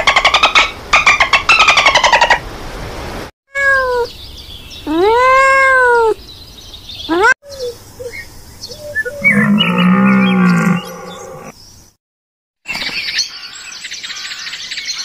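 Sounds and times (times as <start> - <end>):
cat meowing: 3.6 - 4.1, 4.9 - 6.2.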